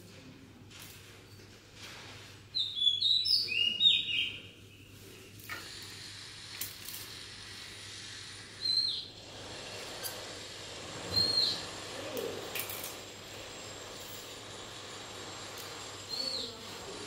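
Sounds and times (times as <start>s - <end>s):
bird chirping: 2.6s - 5.4s, 8.6s - 9.2s, 11.1s - 11.7s.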